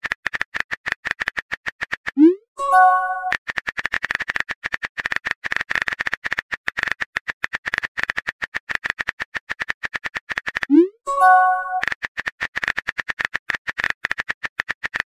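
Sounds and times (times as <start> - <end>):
rapid key-tap clicks: 3.2 - 10.8, 11.5 - 15.0.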